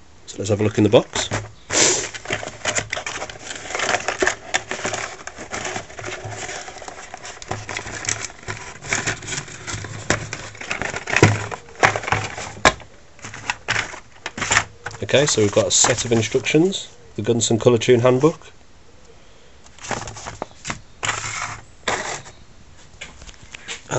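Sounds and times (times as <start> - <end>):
rustling and scraping of packaging: 0.4 - 17.0, 18.0 - 18.5, 19.7 - 23.9
cardboard box being opened: 1.2 - 16.7, 19.8 - 22.4.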